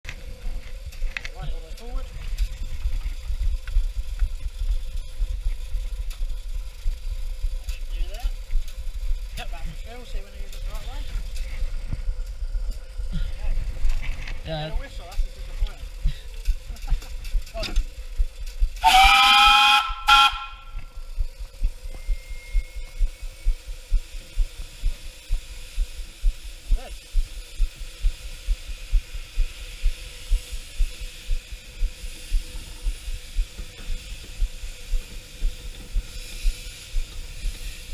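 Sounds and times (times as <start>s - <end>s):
low rumble and buffeting: 0.0s - 37.9s
faint steady hum: 0.1s - 37.9s
light ticks: 3.4s - 9.5s
steam locomotive whistle: 18.8s - 20.9s
faint steady tone: 19.8s - 37.9s.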